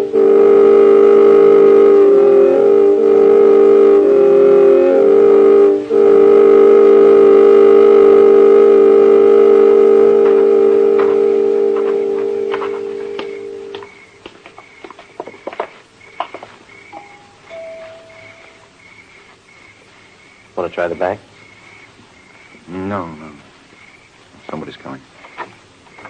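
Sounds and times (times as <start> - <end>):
music bridge chords: 17.0 - 18.8.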